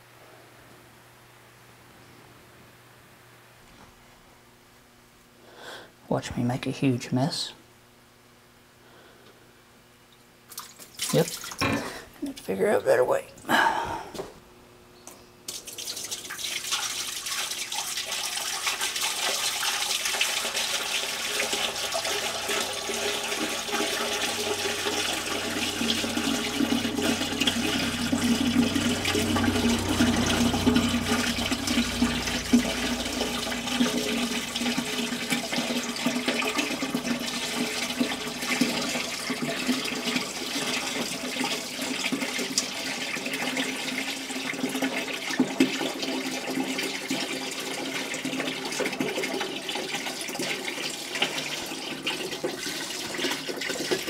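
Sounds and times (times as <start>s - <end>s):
liquid pouring through funnel: 10.5s - 11.6s, 15.5s - 54.0s.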